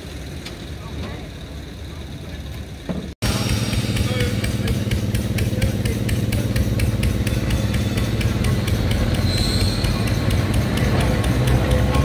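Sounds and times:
electric tram humming: 0.0s - 12.0s
fast even ticking: 3.3s - 12.0s
high wheel squeal: 7.0s - 12.0s.

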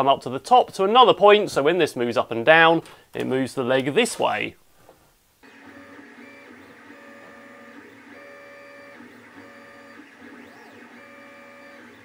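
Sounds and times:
cooling fans whirring: 5.4s - 12.0s
stepper motors whining: 5.4s - 12.0s.

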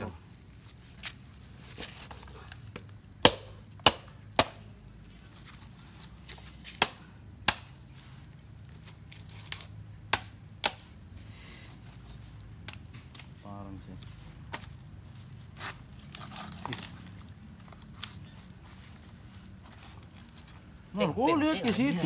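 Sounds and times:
machete chopping meat and bone: 3.2s - 4.6s, 6.8s - 7.7s, 9.5s - 10.8s.

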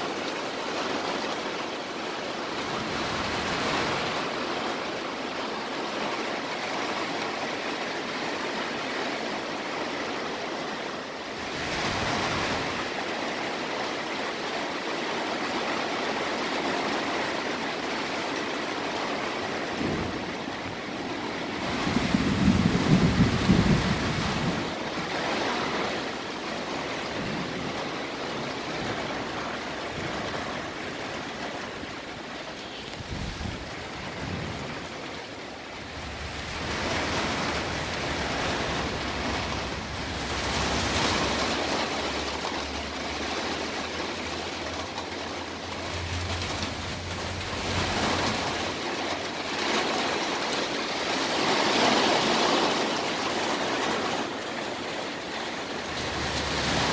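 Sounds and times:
torrential rain pouring: 0.0s - 56.9s
low thunder rumble: 19.5s - 25.4s, 33.0s - 42.4s, 43.1s - 49.8s.

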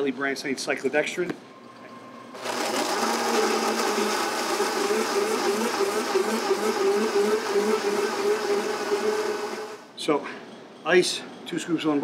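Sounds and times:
blender motor whirring: 2.4s - 9.8s.

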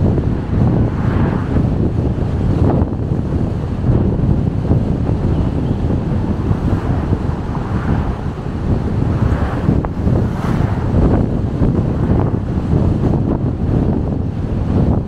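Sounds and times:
road noise: 0.0s - 15.0s
wind rumbling on microphone: 0.0s - 15.0s.

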